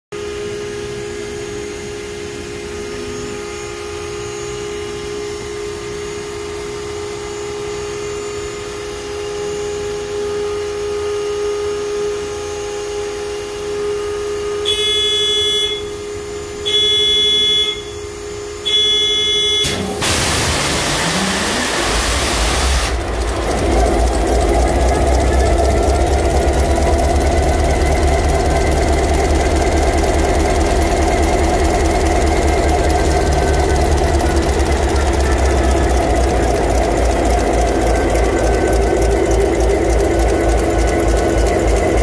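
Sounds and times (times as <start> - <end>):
steady hum: 11.7 - 42.0
diesel engine cranking and firing: 14.7 - 42.0
warning beeps: 16.7 - 18.0, 18.7 - 20.0
compressed air starter hiss: 18.7 - 23.6.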